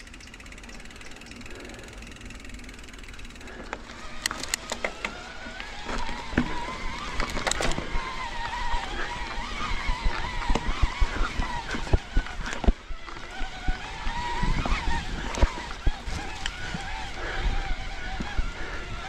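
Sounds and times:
bike rattling over rough trail: 0.0s - 19.0s
electric bike motor whining: 0.0s - 19.0s.

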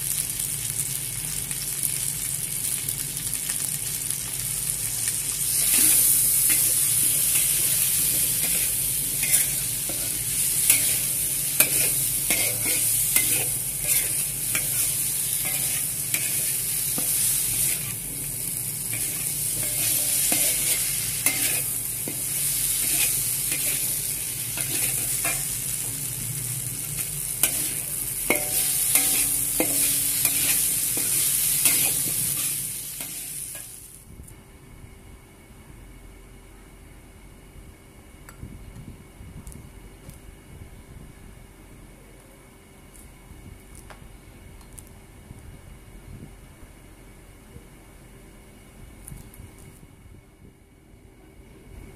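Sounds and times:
food sizzling in frying pan: 0.0s - 34.0s
metal spatula scraping pan: 5.6s - 18.0s, 18.9s - 25.6s, 27.4s - 33.7s.

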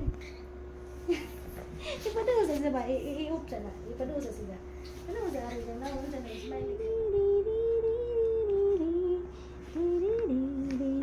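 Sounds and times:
woman humming: 5.5s - 11.0s.

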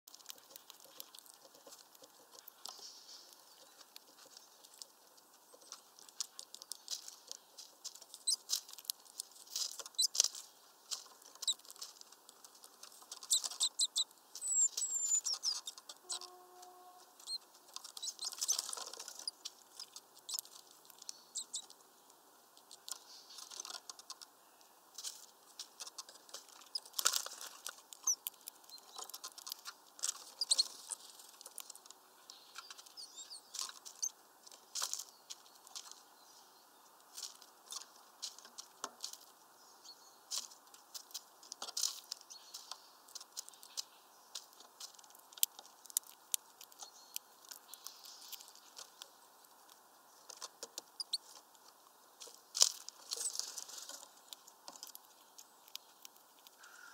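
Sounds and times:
birds pecking at a mesh feeder: 0.1s - 39.6s, 40.2s - 56.9s
high thin bird chirps: 8.1s - 8.5s, 9.8s - 10.2s, 13.2s - 20.4s, 21.0s - 21.7s, 30.3s - 31.1s, 32.3s - 34.2s, 50.9s - 51.3s.

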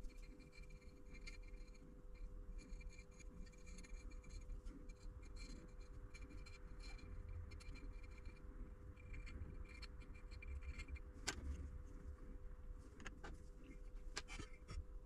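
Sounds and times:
steady low hum: 0.0s - 15.0s
paintbrush scratchy rustles: 12.8s - 14.9s.

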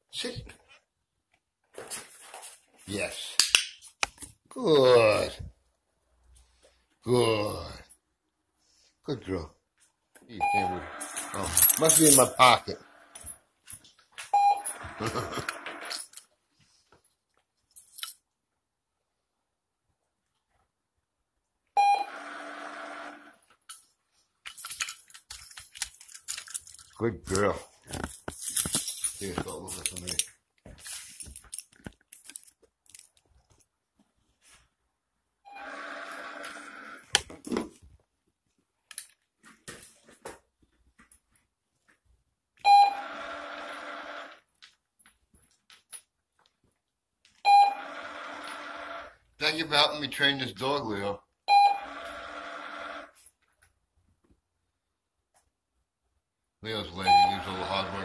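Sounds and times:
short beep: 10.4s - 10.9s, 14.4s - 14.6s, 47.5s - 47.8s, 57.0s - 57.6s
treat dispenser mechanical noise: 22.0s - 23.4s, 42.8s - 44.4s, 47.6s - 49.2s, 51.7s - 53.1s.

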